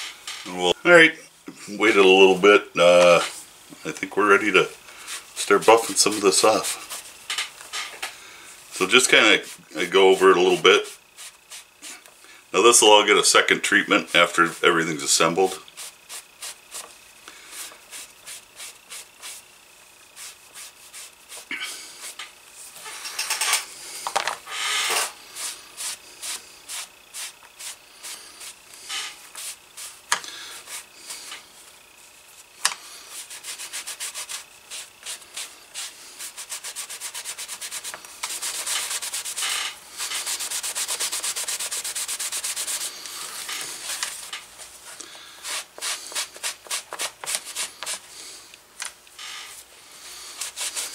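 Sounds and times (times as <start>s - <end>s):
pad rubbing on leather: 10.9s - 11.8s, 15.8s - 19.5s, 20.2s - 22.2s, 25.4s - 28.6s, 29.2s - 30.0s, 30.6s - 31.3s, 33.1s - 44.1s, 45.4s - 48.0s, 50.2s - 50.9s.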